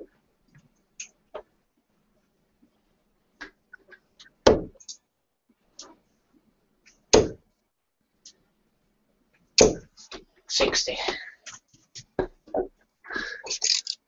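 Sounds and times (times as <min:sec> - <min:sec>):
darts thudding into dartboard: 0:04.4 - 0:04.8, 0:07.1 - 0:07.4, 0:09.6 - 0:10.2.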